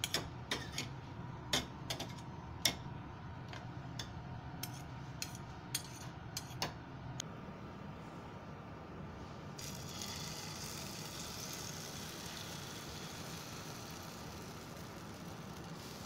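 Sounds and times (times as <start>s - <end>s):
cooktop fan humming: 0.0s - 16.0s
egg sizzling in a frying pan: 9.6s - 16.0s.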